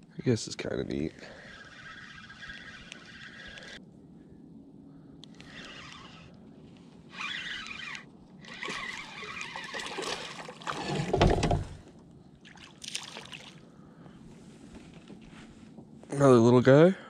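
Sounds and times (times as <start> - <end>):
water sloshing and trickling: 1.1 - 3.8, 7.2 - 13.8.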